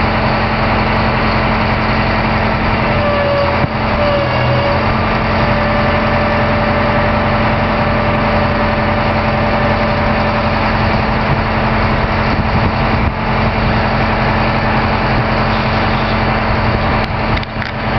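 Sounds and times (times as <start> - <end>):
engine running steadily: 0.0 - 17.9
steady whine: 0.0 - 17.9.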